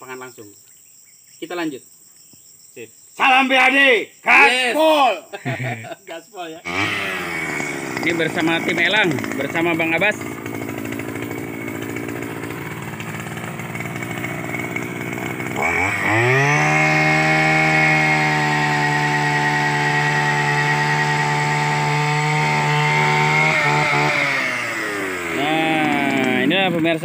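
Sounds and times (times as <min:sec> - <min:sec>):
petrol engine drill revving: 0:06.6 - 0:27.0.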